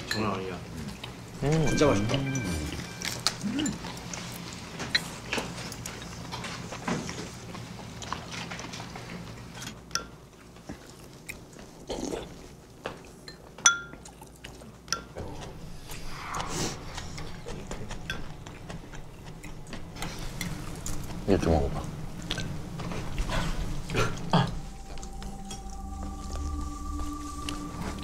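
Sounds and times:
chopsticks and spoons on bowls: 0.0s - 7.2s
soft chewing: 2.6s - 15.8s, 17.1s - 27.7s.

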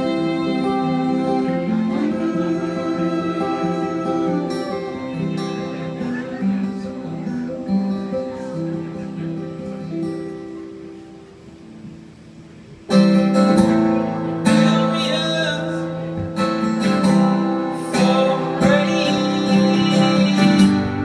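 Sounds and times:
bowed violin: 0.0s - 7.3s
acoustic guitars strumming: 0.0s - 21.0s.

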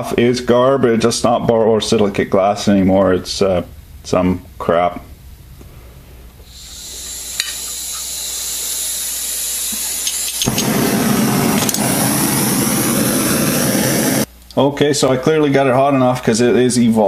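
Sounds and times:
gas hissing from torch: 6.4s - 14.3s
torch flame rushing: 6.5s - 14.3s.

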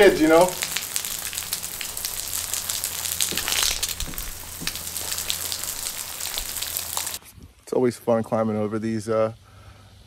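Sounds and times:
water fizzing into mud: 0.0s - 7.2s.

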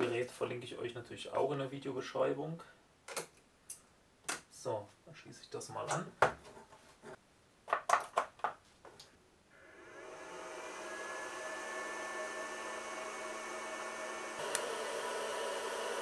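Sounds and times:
charger cooling fan whirring: 9.7s - 16.0s
sharp clicks of clamps and plug: 14.4s - 14.7s.

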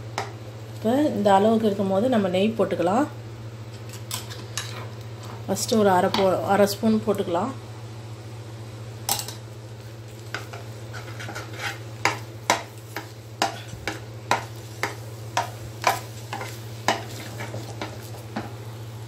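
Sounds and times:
steady low hum: 0.0s - 19.0s
metal spoon scraping a metal pan: 10.4s - 12.2s.

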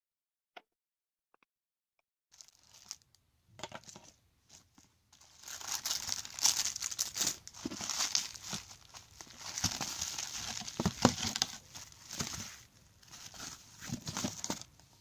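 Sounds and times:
bubble wrap crinkling: 2.3s - 3.2s, 3.8s - 15.0s.

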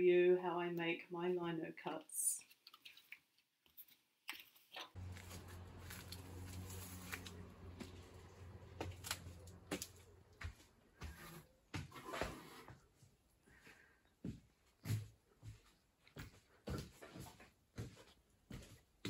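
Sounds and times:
low steady hum: 5.0s - 11.1s
faint footsteps: 5.0s - 19.0s.

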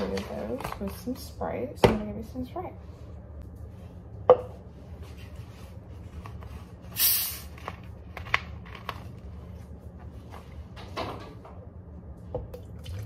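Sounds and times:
carbonation hiss from bottle: 7.0s - 7.5s.

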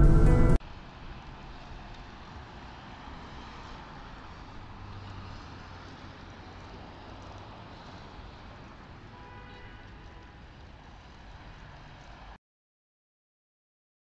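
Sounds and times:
low engine hum: 0.0s - 8.9s
car engine and road noise: 0.0s - 12.4s.

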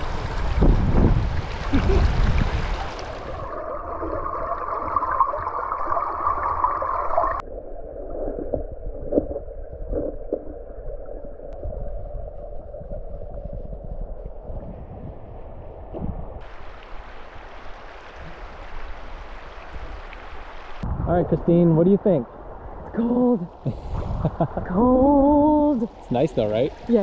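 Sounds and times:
river water running over stones: 0.0s - 7.4s, 16.4s - 20.8s.

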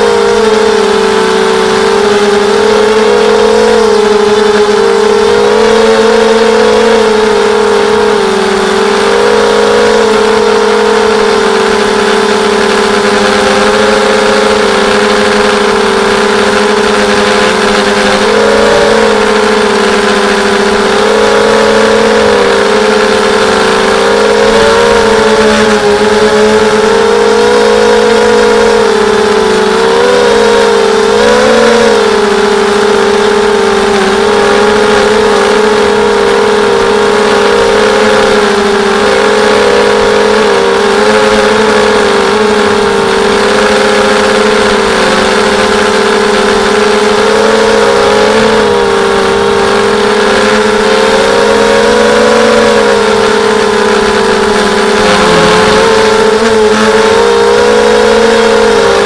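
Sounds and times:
quadcopter motors whining: 0.0s - 59.0s.

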